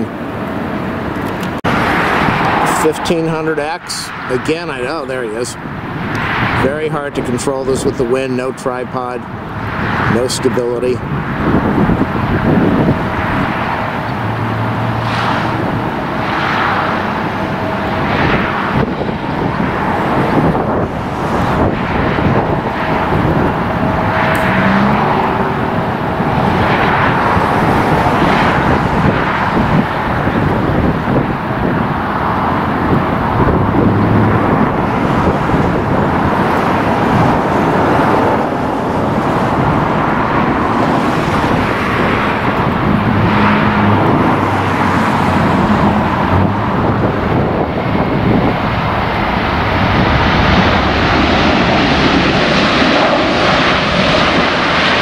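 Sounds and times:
jet aircraft noise: 0.0s - 55.0s
road traffic: 0.0s - 55.0s
wind buffeting microphone: 0.0s - 55.0s.

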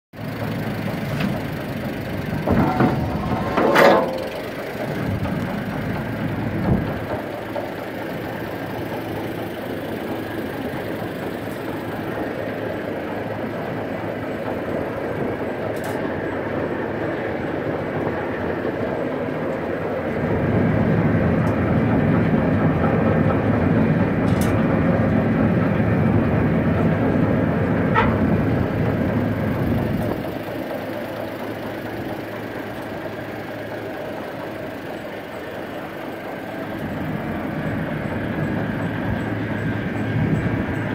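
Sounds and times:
engine idling: 0.1s - 40.9s
metallic clanks: 2.4s - 7.2s.

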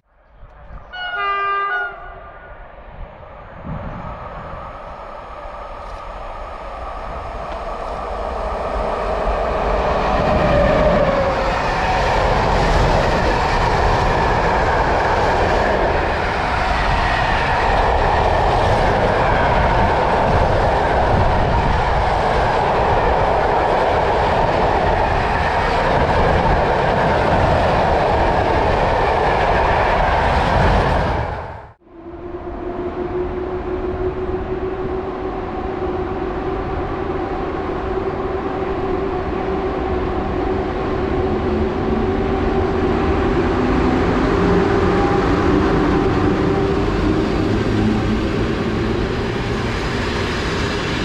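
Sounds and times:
train passing: 0.2s - 51.0s.

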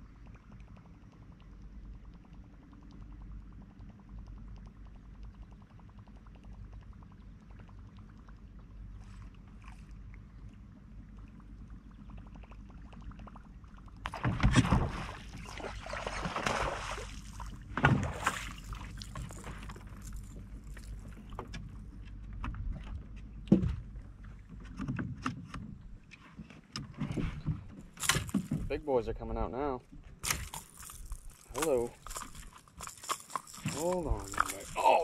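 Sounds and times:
low steady hum: 0.0s - 35.0s
fish splashing and thrashing in water: 14.0s - 21.5s, 27.8s - 28.7s, 30.2s - 35.0s.

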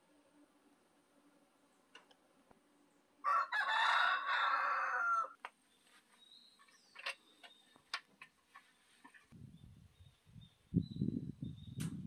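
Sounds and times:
rooster crowing: 3.2s - 5.4s.

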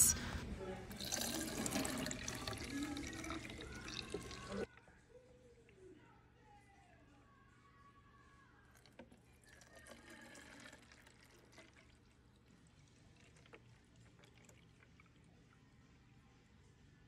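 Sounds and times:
thick liquid pouring into bottle: 0.9s - 4.7s, 8.7s - 15.4s.

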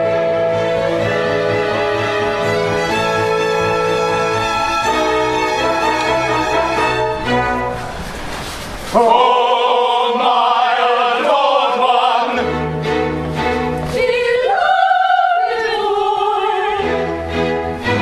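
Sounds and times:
orchestra playing: 0.0s - 9.1s, 12.2s - 13.9s, 16.7s - 18.0s
operatic high voice singing: 9.0s - 12.6s, 13.9s - 17.2s.

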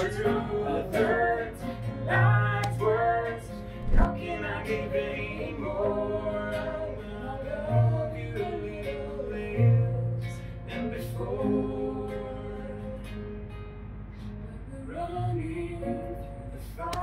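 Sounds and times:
woman singing: 0.0s - 10.4s, 14.4s - 17.0s
acoustic guitar: 0.0s - 17.0s.

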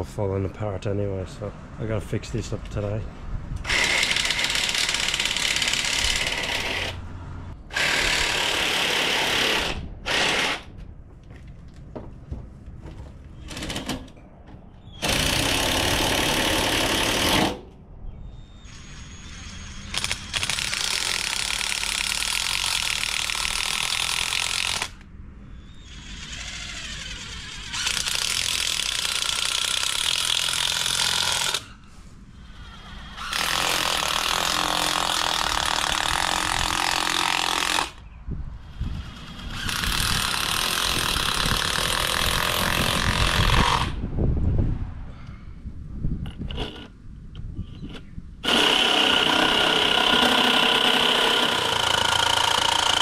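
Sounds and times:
cordless drill drilling plastic: 25.8s - 31.7s, 39.0s - 44.0s, 47.7s - 53.0s.

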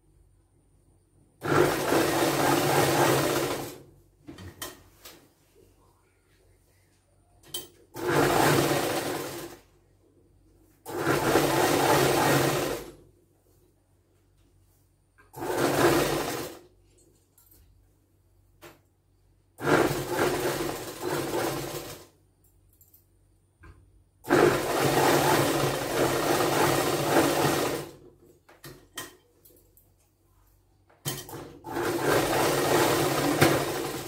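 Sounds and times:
sewing machine stitching: 1.4s - 3.8s, 7.9s - 9.7s, 10.9s - 13.0s, 15.3s - 16.7s, 19.6s - 22.1s, 24.2s - 28.0s, 31.1s - 34.0s.

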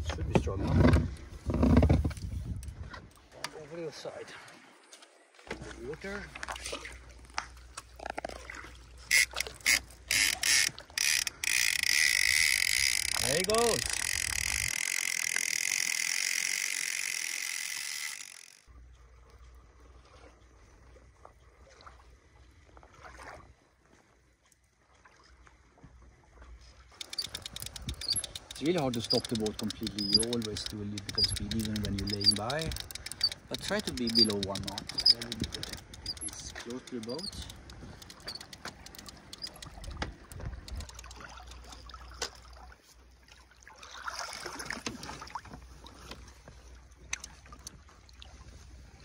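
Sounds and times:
water splashing and trickling: 0.0s - 49.0s
sharp clicks: 9.1s - 18.7s, 27.0s - 41.8s, 47.1s - 47.7s.

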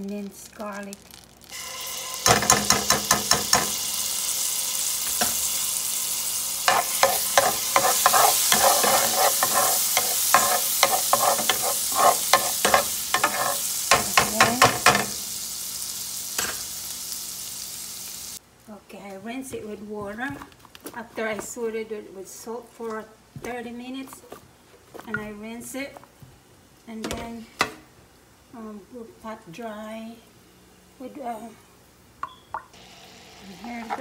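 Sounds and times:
garlic sizzling in butter: 0.0s - 18.7s, 32.7s - 34.0s
spoon scraping pan: 6.7s - 15.2s, 33.6s - 34.0s.

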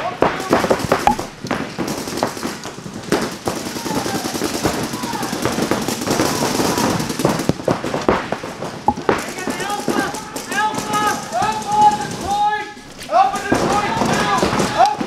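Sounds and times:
paintball markers rapid firing: 0.2s - 12.5s, 13.3s - 15.0s
players shouting: 3.5s - 7.5s, 9.0s - 15.0s.

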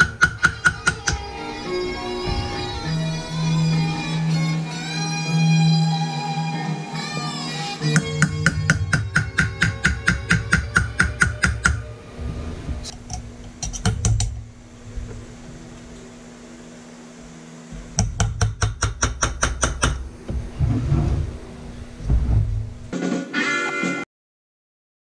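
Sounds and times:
hammer tapping metal graver: 0.0s - 1.5s, 7.8s - 11.9s, 12.9s - 14.4s, 17.8s - 20.1s.

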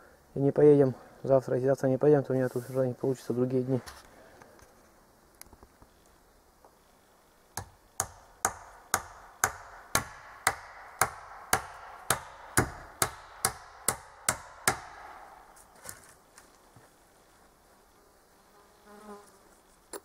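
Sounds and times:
hatchet striking wood: 7.6s - 15.3s.

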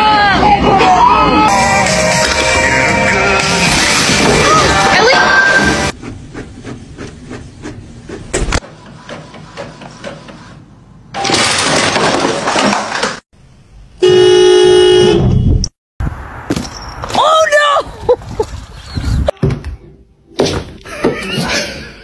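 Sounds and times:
car horn blaring: 14.0s - 15.5s.

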